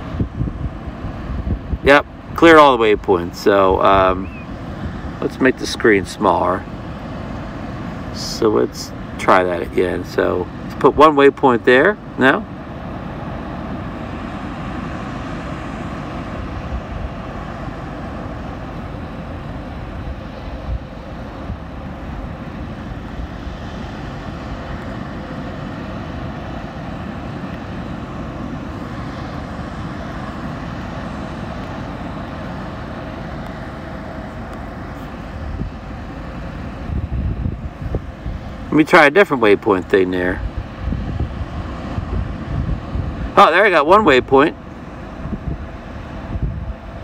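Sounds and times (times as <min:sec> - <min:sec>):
faint hum: 0:00.0 - 0:47.0
steady rushing noise: 0:00.0 - 0:47.0.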